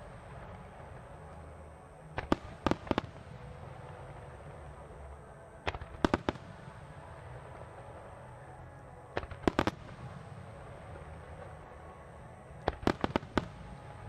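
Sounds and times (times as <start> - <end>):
steady background noise: 0.0 - 14.0
distant firework bangs: 12.7 - 14.0.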